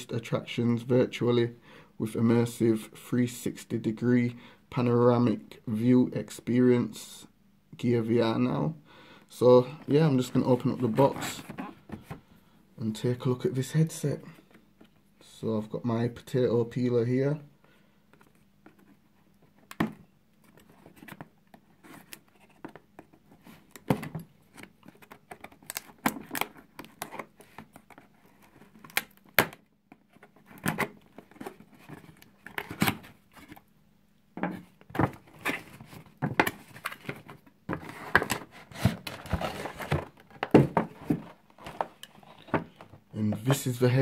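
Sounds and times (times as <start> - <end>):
cardboard and packaging rustling: 9.8 - 12.3, 20.4 - 33.7, 34.4 - 43.7.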